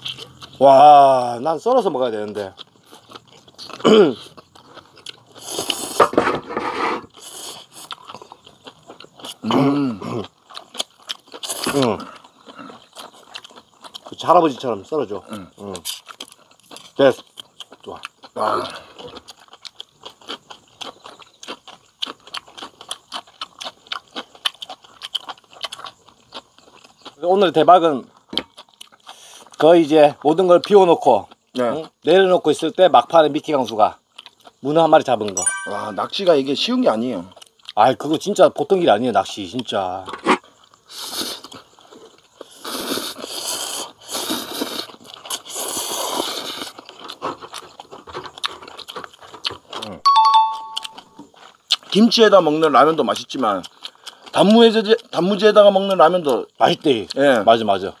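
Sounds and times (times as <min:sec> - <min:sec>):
wet chewing and lip-smacking: 0:00.0 - 0:00.6, 0:02.2 - 0:06.0, 0:07.1 - 0:27.2, 0:28.0 - 0:32.0, 0:33.6 - 0:38.4, 0:39.6 - 0:52.2, 0:53.0 - 0:57.3
people slurping noodles: 0:02.8 - 0:08.4, 0:09.2 - 0:10.7, 0:11.3 - 0:13.4, 0:18.3 - 0:19.4, 0:40.1 - 0:50.0.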